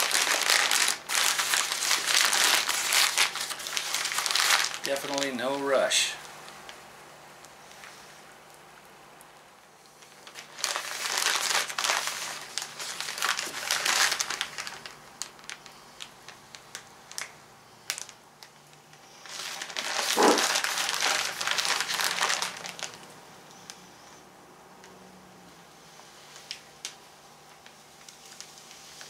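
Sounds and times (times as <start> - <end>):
paper tape crinkling: 0.0 - 6.8, 9.9 - 24.1, 26.2 - 29.0.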